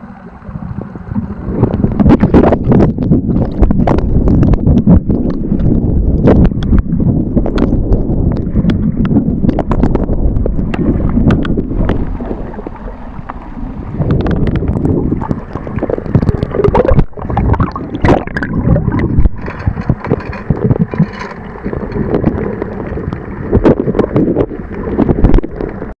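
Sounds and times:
muffled seawater sloshing: 0:00.0 - 0:26.0
sharp clicks and knocks: 0:07.5 - 0:25.8.

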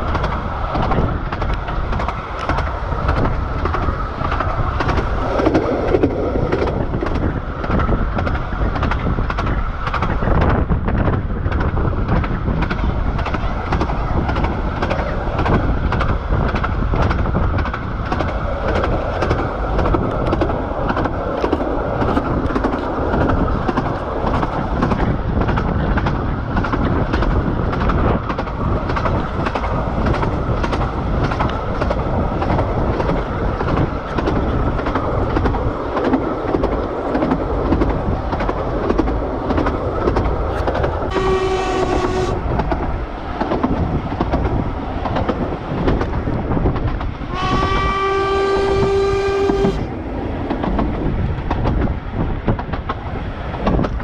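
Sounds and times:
train rumble: 0:00.0 - 0:54.0
train wheels clattering on rails: 0:00.0 - 0:54.0
locomotive horn blasts: 0:41.1 - 0:42.4, 0:47.3 - 0:49.9.

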